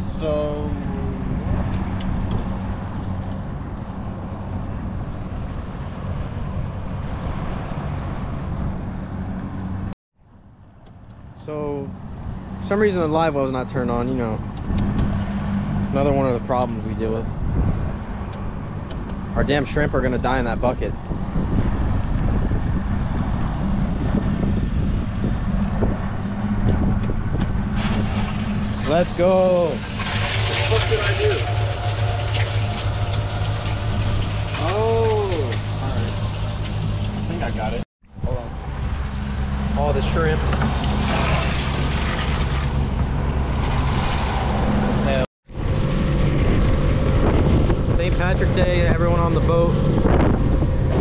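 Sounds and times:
wind buffeting microphone: 16.7s - 51.0s
water rushing around hull: 27.6s - 37.8s, 38.5s - 48.0s
outboard motor running: 27.7s - 37.8s, 38.6s - 44.3s.

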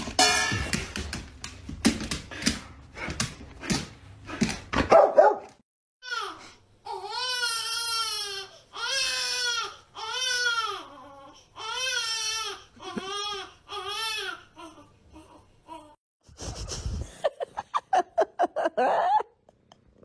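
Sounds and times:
baby crying: 6.0s - 16.0s.

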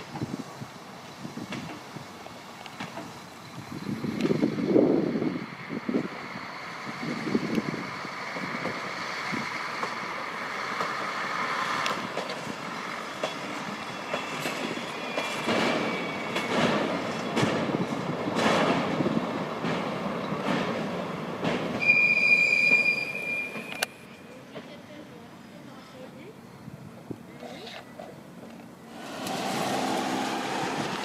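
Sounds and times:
diesel railcar rumbling past: 0.0s - 31.0s
wheels clicking over rail joints: 7.4s - 24.8s, 27.4s - 31.0s
high-pitched wheel squeal: 13.0s - 16.6s, 21.8s - 24.1s.

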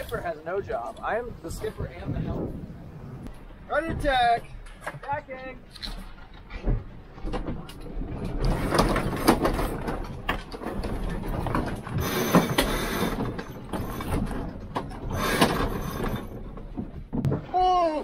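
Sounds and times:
rushing wind: 0.0s - 17.5s.

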